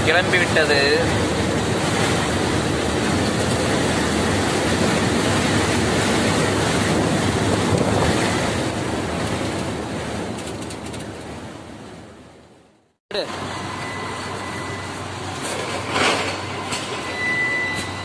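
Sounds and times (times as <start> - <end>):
strong wind gusting: 0.0 - 12.4
wind buffeting microphone: 1.1 - 12.0.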